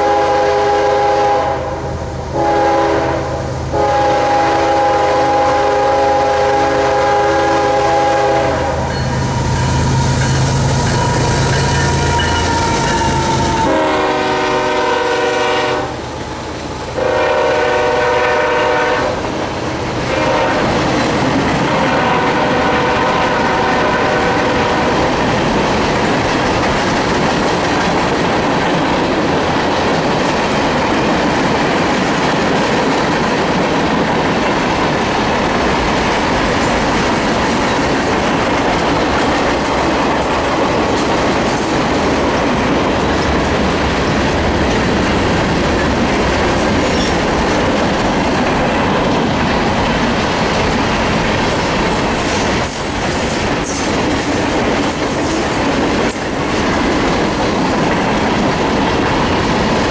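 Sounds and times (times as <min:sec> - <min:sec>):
locomotive air horn blasts: 0:00.0 - 0:16.1, 0:17.0 - 0:19.2, 0:20.1 - 0:20.8, 0:21.7 - 0:25.1
train wheels clacking on rail joints: 0:06.9 - 0:15.6, 0:18.7 - 0:59.9.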